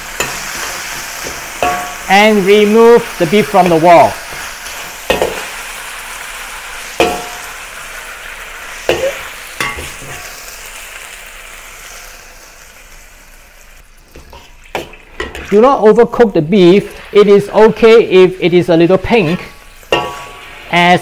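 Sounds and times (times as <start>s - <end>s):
oil sizzling in a wok: 0.0s - 15.8s, 16.6s - 21.0s
metal spatula scraping wok: 19.1s - 20.8s.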